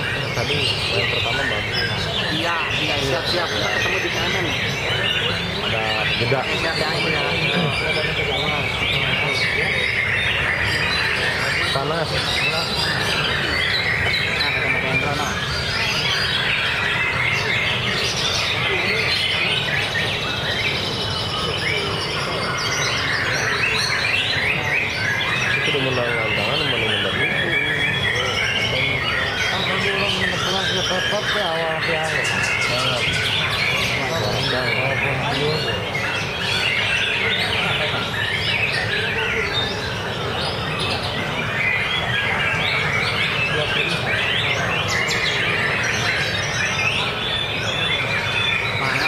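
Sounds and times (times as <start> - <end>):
low background noise: 0.0 - 49.0
other birdsong: 0.0 - 49.0.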